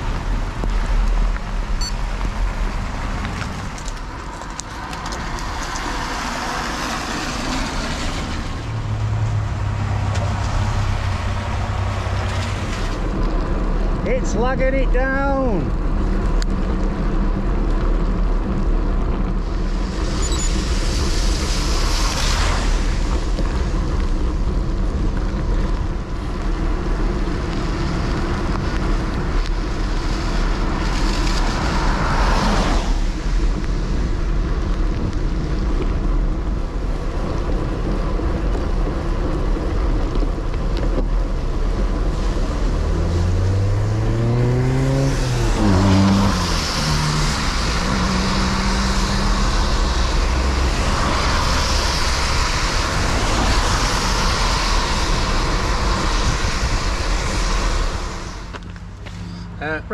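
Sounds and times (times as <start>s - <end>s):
wind rumbling on microphone: 0.0s - 59.6s
heavy rain: 0.0s - 59.9s
vehicles passing on wet road: 0.0s - 59.9s
tyre hiss on wet road: 19.3s - 59.6s
engine note rising: 42.6s - 51.0s.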